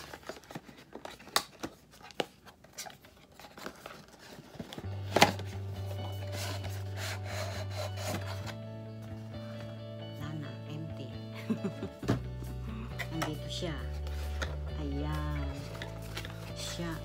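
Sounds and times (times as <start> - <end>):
cardboard box handling: 0.0 - 8.5
background music with low note: 4.5 - 17.0.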